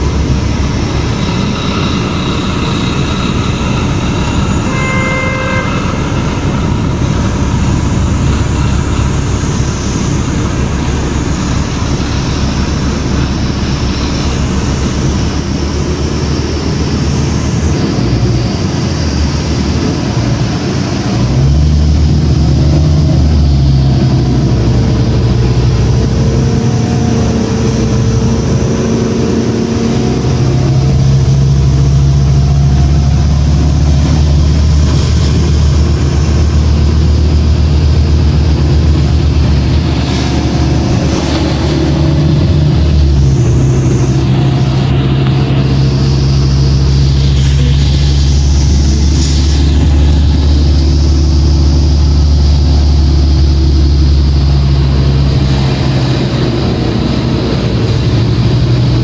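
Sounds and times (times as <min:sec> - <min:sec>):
bus diesel engine running: 0:00.0 - 0:59.0
road and cabin noise: 0:00.0 - 0:59.0
short tone: 0:01.1 - 0:09.1, 0:46.9 - 0:50.3.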